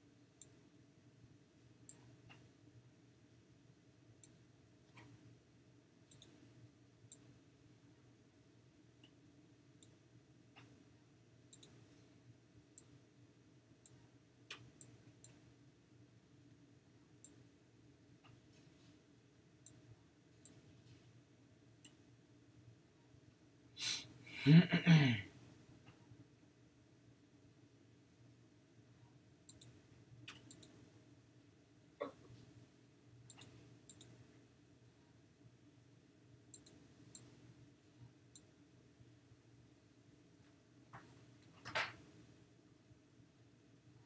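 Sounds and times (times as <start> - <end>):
computer mouse clicks: 1.9 - 2.4, 6.1 - 6.4, 11.5 - 11.8, 13.8 - 15.4, 29.5 - 30.8, 33.3 - 34.2, 36.5 - 37.4
person sighing: 23.8 - 25.3.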